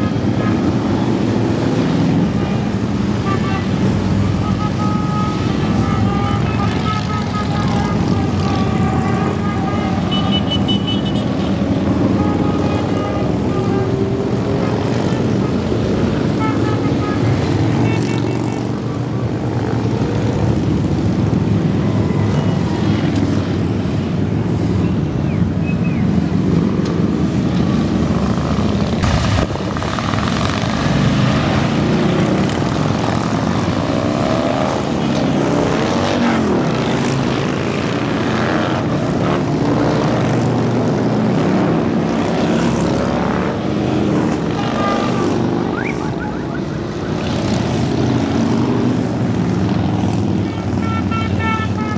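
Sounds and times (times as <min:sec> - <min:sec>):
motorcycles rumbling past: 0:26.5 - 0:50.8.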